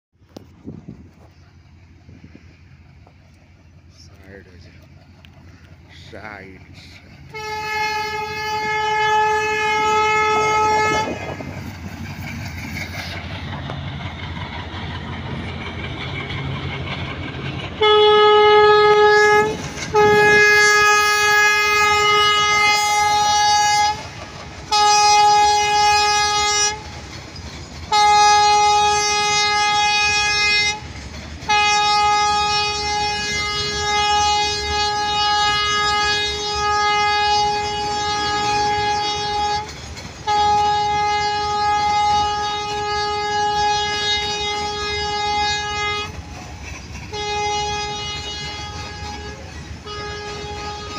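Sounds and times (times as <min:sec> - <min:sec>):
freight train rumbling past: 0:00.2 - 0:50.9
train horn blasts: 0:07.3 - 0:11.6, 0:17.8 - 0:26.9, 0:27.9 - 0:46.2, 0:47.1 - 0:50.9.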